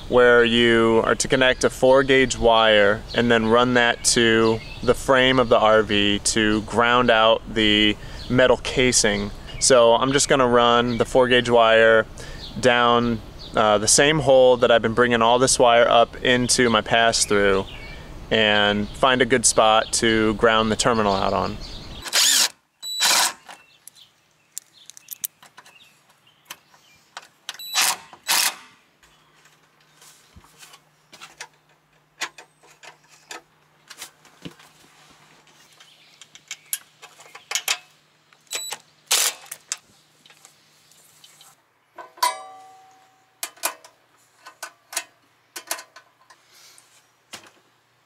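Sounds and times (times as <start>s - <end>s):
faint steady hum: 0.0s - 48.0s
metal tools clinking and knocking: 42.0s - 46.4s
ringing metallic clank: 42.1s - 43.4s.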